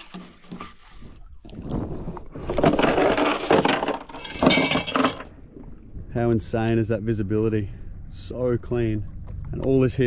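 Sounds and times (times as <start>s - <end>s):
chain clinking and rattling: 2.4s - 5.3s.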